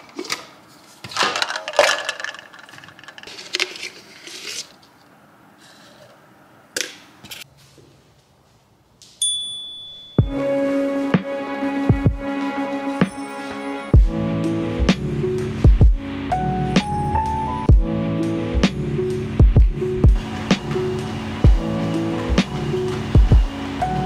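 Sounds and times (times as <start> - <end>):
small objects clicking and clinking: 1.2 - 4.6
bright ringing ding: 9.2 - 10.3
music: 10.2 - 24.0.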